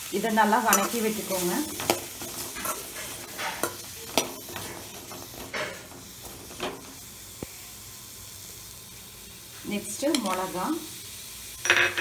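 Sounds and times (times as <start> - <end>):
shallots sizzling in oil: 0.0 - 12.0
metal spatula scraping pan: 0.6 - 6.9.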